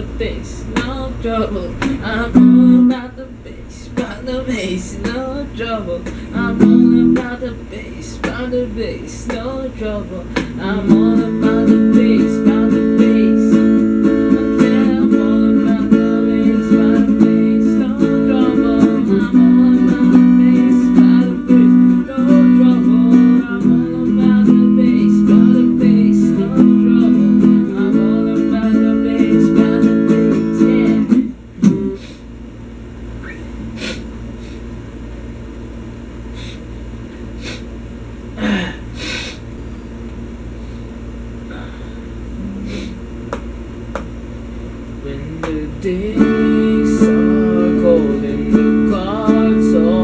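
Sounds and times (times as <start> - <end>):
electric guitar strumming chords: 1.7 - 3.1, 6.0 - 7.5, 10.3 - 31.9, 45.3 - 50.0.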